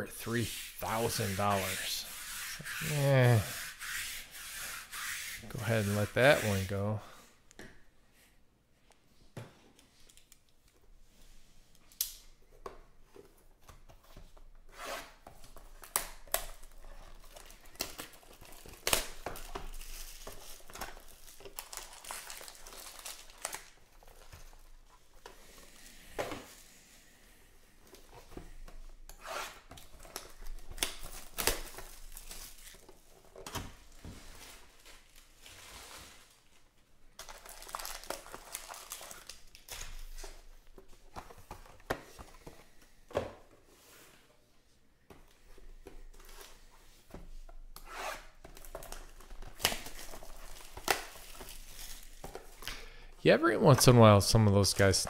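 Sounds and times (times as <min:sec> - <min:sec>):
foil packs crinkling: 0:15.7 - 0:24.8, 0:37.2 - 0:40.2, 0:48.6 - 0:52.6.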